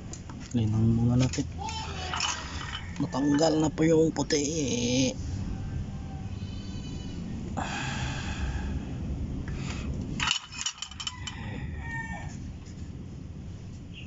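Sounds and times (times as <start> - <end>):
rooster crowing: 2.1 - 4.2, 5.2 - 7.3, 10.7 - 12.5.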